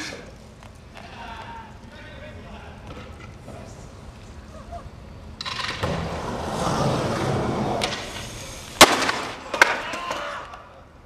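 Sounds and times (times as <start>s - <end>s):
skateboard wheels rolling on concrete: 0.0s - 11.0s
skater falling onto pavement: 5.4s - 10.6s.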